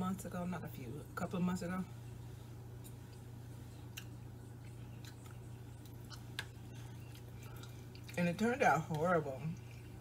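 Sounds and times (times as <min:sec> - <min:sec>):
steady low hum: 0:00.0 - 0:10.0
person chewing food: 0:02.8 - 0:08.2, 0:09.5 - 0:10.0.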